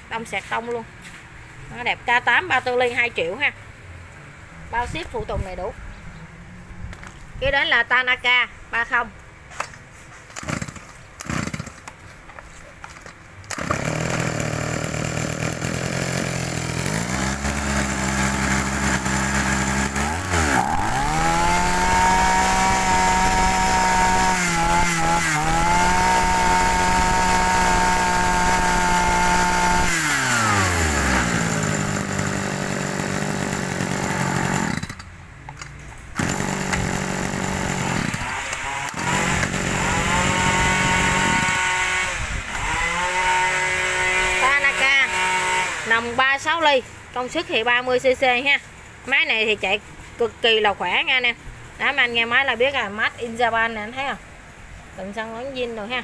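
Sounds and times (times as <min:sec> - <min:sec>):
brush-cutter engine revving: 0:10.2 - 0:12.0, 0:12.9 - 0:35.1, 0:36.2 - 0:46.2.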